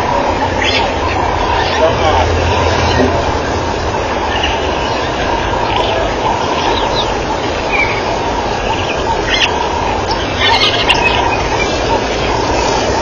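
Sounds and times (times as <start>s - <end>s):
loud rumbling background noise: 0.0s - 13.0s.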